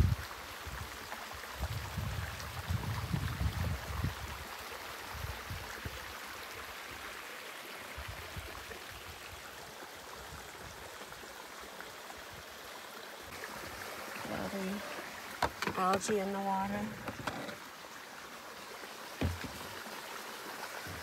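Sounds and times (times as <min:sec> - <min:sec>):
waterfall and creek rushing: 0:00.0 - 0:21.0.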